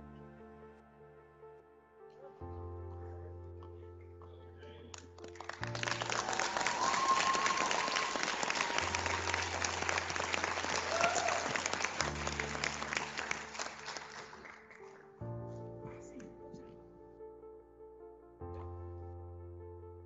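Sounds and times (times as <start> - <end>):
soft background music: 0.0 - 20.0
audience applauding: 4.9 - 15.2.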